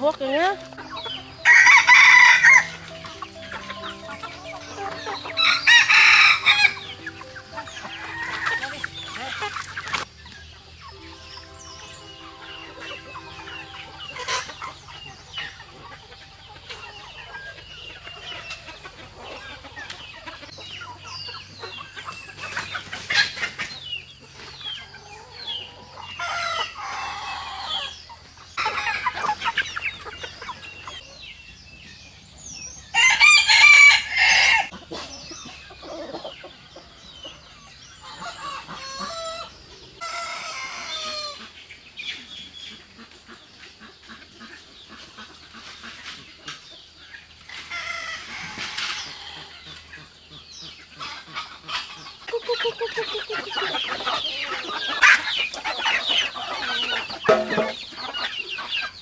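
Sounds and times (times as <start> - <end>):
chickens clucking: 0.0 - 59.0
roosters crowing: 0.6 - 10.1, 10.7 - 20.5, 24.6 - 31.0, 32.7 - 34.8, 35.7 - 41.6, 47.5 - 49.9.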